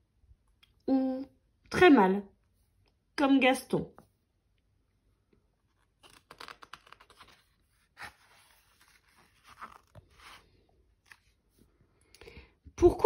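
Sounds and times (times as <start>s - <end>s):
book pages turning: 5.3s - 11.6s.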